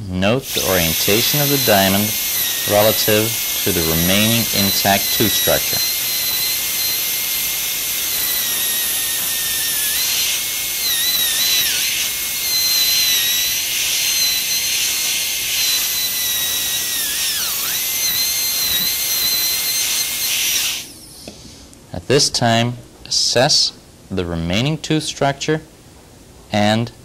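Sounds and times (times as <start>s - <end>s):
dental drill whining: 0.5s - 21.4s.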